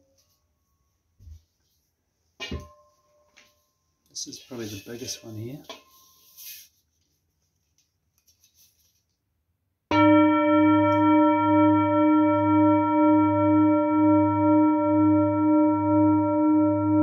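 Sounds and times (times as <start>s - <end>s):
singing bowl ringing: 5.0s - 6.4s, 9.9s - 17.0s.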